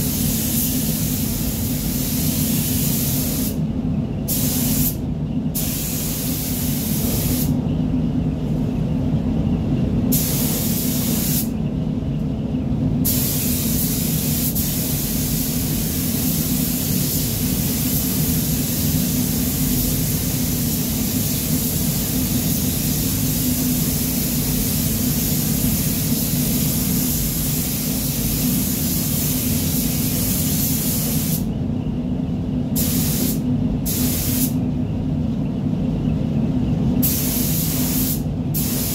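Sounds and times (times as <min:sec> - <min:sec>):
paint spray gun hissing: 0:00.0 - 0:03.6, 0:04.3 - 0:05.0, 0:05.6 - 0:07.5, 0:10.1 - 0:11.5, 0:13.1 - 0:31.4, 0:32.8 - 0:34.6, 0:37.0 - 0:38.9.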